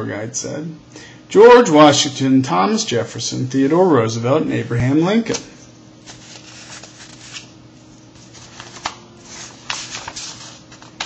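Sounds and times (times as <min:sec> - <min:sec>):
book pages rustling: 0:06.0 - 0:07.5, 0:08.1 - 0:11.0.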